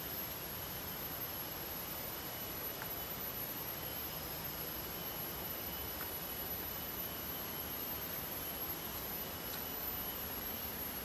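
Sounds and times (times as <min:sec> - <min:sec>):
high-pitched insect whine: 0:00.0 - 0:11.0.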